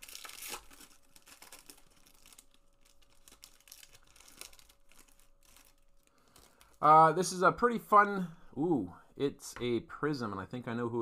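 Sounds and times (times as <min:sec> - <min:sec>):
foil wrapper crinkling: 0:00.0 - 0:06.9.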